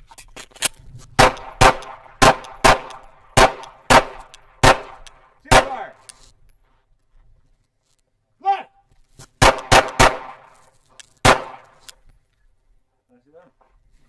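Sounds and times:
handgun shots with echo: 0:01.2 - 0:05.9, 0:09.4 - 0:10.6, 0:11.2 - 0:11.9.

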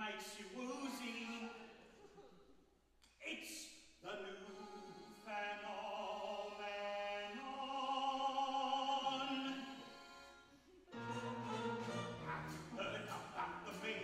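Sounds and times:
cast singing held chords: 0:10.9 - 0:14.0.

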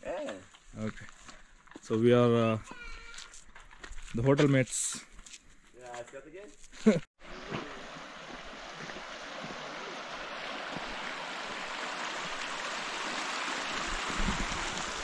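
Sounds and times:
stream water rushing: 0:07.2 - 0:15.0.

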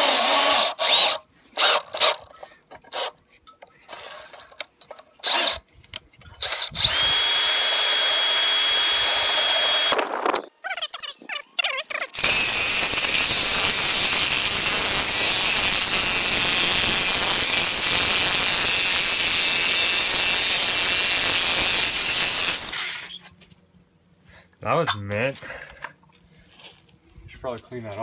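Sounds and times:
jigsaw cutting metal: 0:00.0 - 0:02.2, 0:05.2 - 0:05.6, 0:06.4 - 0:10.2, 0:12.2 - 0:23.2.

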